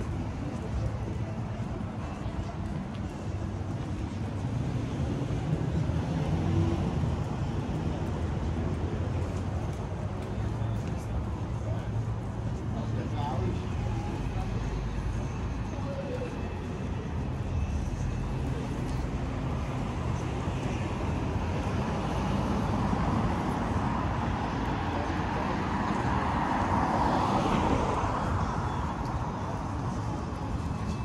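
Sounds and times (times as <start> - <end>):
traffic rumble: 0.0 - 31.0.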